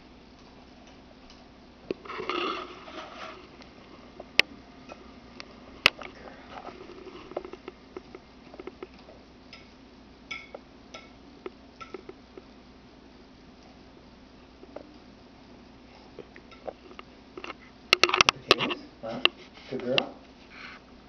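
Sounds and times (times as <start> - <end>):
metal utensil scraping a plate: 2.1 - 3.5.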